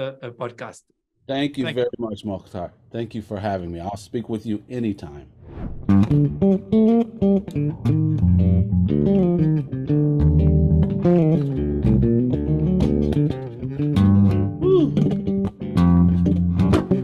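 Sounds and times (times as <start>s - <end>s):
electric bass guitar: 5.9s - 17.0s.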